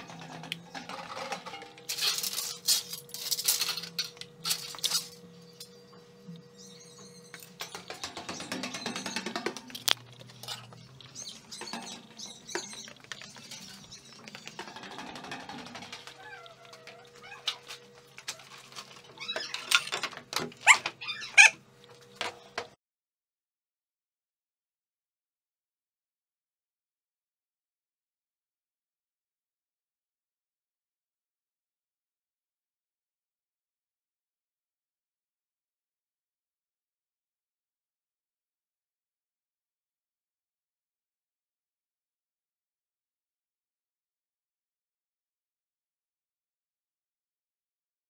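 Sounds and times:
metal strips clinking and rattling: 0.0 - 5.2
cat meowing: 20.7 - 21.6.

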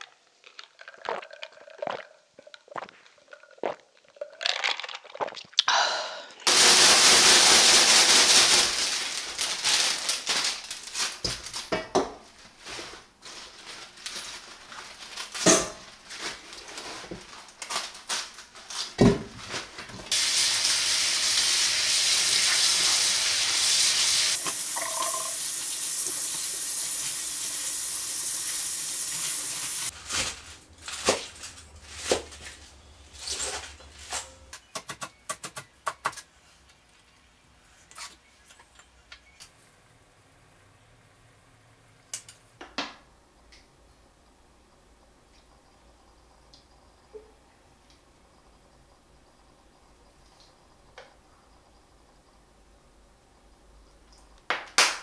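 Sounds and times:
splashing and handling wet leaves: 0.0 - 5.6, 6.5 - 11.7, 29.9 - 34.1.

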